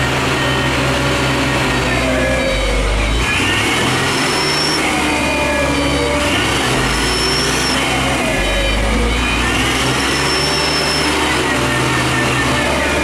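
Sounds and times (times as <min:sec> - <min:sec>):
diesel truck engine labouring: 0:00.0 - 0:13.0.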